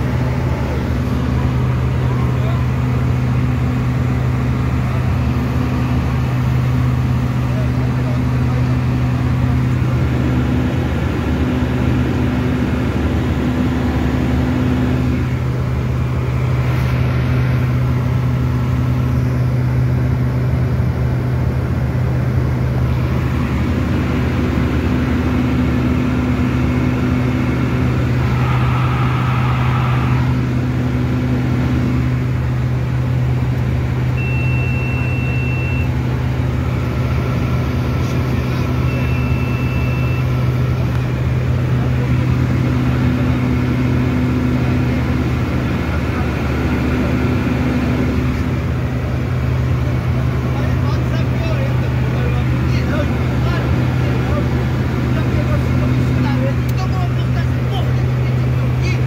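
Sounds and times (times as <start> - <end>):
turboprop engines droning in cabin: 0.0 - 59.0.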